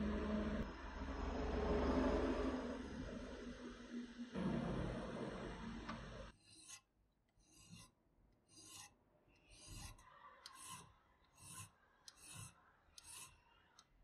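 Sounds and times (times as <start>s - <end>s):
hand file rasping on metal: 6.4s - 13.9s.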